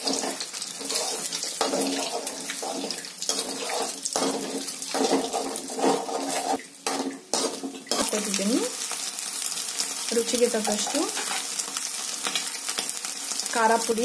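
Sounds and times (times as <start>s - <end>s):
spatula scraping a pan: 0.0s - 8.3s, 10.8s - 12.6s
eggs sizzling in hot oil: 0.0s - 14.0s.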